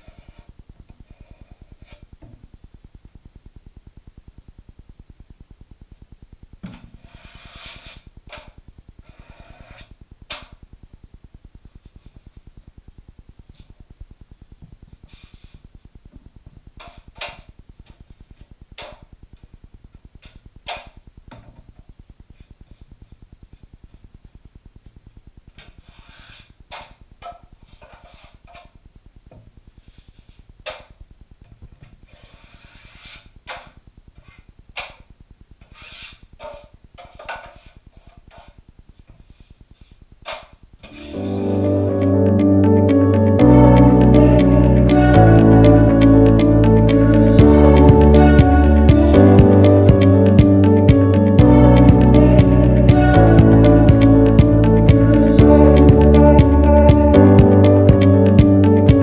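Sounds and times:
faint low buzz: 0.0s - 27.8s, 37.7s - 59.0s
taping knife scraping: 7.1s - 8.1s, 32.1s - 33.7s, 35.6s - 36.6s.

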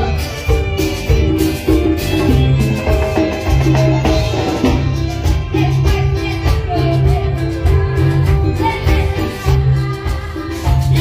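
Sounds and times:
amplified latin-style accompaniment: 0.0s - 11.0s
woman singing into a microphone: 5.4s - 11.0s.

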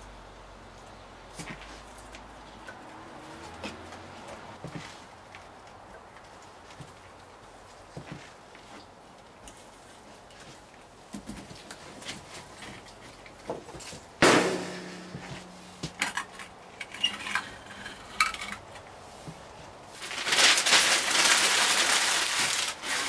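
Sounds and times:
firewood knocking and clattering: 13.4s - 16.6s
newspaper crumpling: 19.9s - 23.0s.

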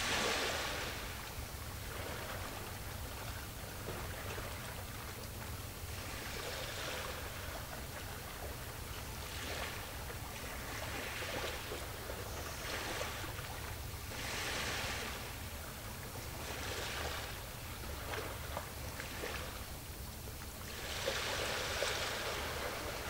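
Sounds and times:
steady low rumble: 0.0s - 11.0s
small waves washing ashore: 0.0s - 23.0s.

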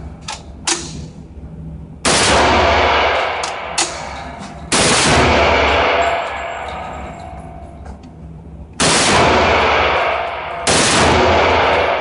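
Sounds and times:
single gunshots: 2.1s - 6.7s, 8.8s - 12.0s.

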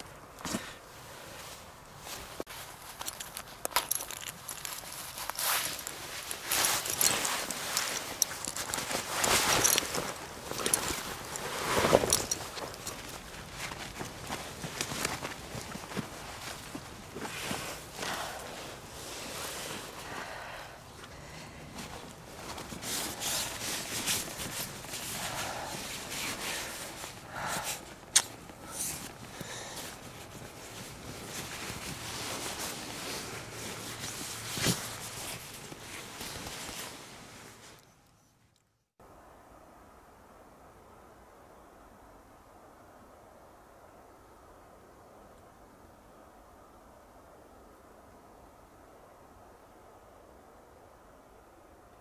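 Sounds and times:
fabric rustling: 0.5s - 37.8s
footsteps on dry leaves: 2.2s - 18.5s.

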